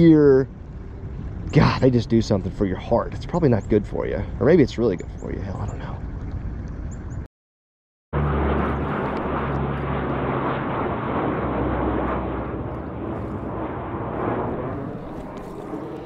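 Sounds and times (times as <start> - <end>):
airplane engine drone: 0.0 - 7.2, 8.2 - 16.0.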